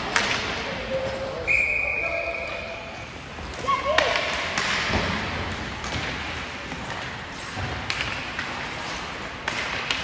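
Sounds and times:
skates scraping ice: 0:02.6 - 0:10.0.

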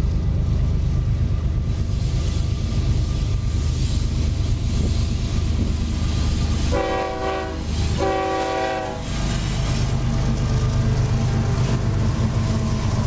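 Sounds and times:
diesel locomotive engine rumble: 0:00.0 - 0:13.0
multi-tone train horn blasts: 0:06.6 - 0:09.2.

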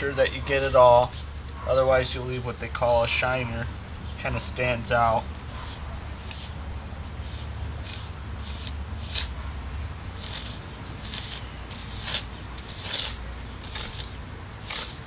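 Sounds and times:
metal tool scraping mortar: 0:00.0 - 0:01.8, 0:05.5 - 0:15.0.

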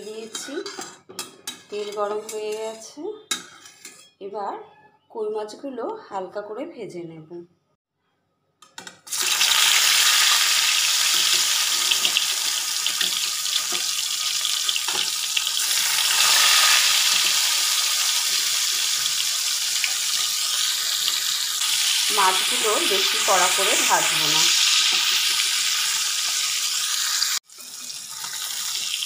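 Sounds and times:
oil sizzling as fish fries: 0:09.0 - 0:29.0.

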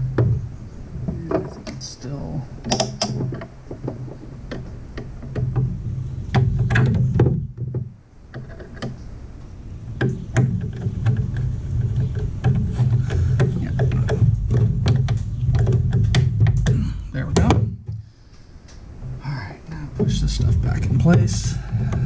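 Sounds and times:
clicks and taps on wiring: 0:02.6 - 0:09.1, 0:10.0 - 0:18.8
steady low rumble: 0:09.0 - 0:22.0.

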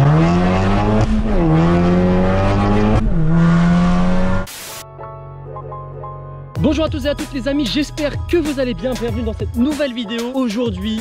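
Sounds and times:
car engine accelerating: 0:00.0 - 0:04.5.

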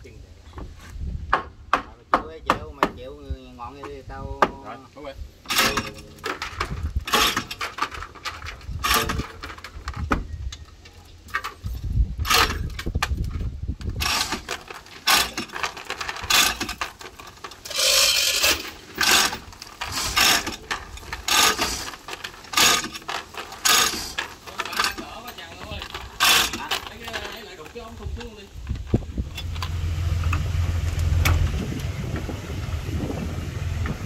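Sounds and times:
rattling clatter: 0:05.5 - 0:10.1, 0:11.2 - 0:34.0
hand tools knocking and clanking: 0:05.5 - 0:10.2, 0:14.0 - 0:29.7.

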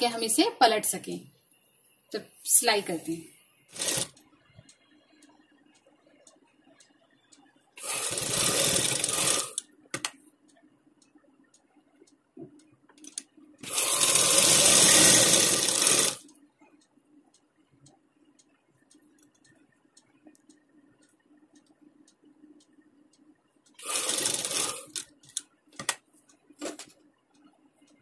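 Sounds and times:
sewing machine stitching: 0:03.7 - 0:04.2, 0:07.8 - 0:09.6, 0:13.6 - 0:16.2, 0:23.8 - 0:25.1
faint light ticks: 0:04.0 - 0:07.8, 0:09.6 - 0:13.6, 0:16.2 - 0:23.8.

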